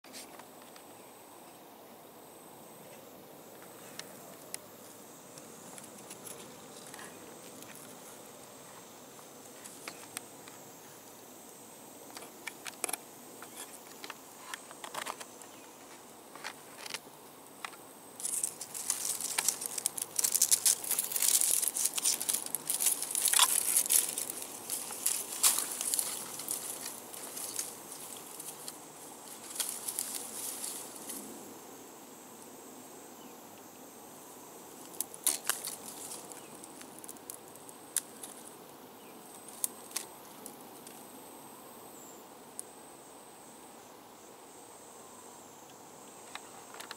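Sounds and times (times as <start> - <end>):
high insect buzz: 0.0 - 46.9
crackling rustle: 2.8 - 11.2, 12.0 - 31.5, 34.7 - 41.2, 46.0 - 46.9.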